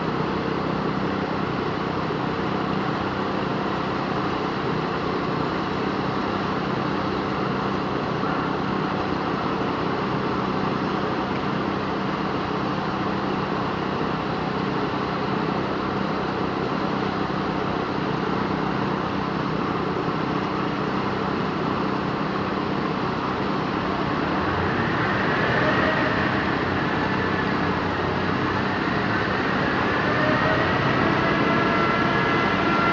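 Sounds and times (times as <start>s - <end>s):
engine droning steadily: 0.0s - 32.9s.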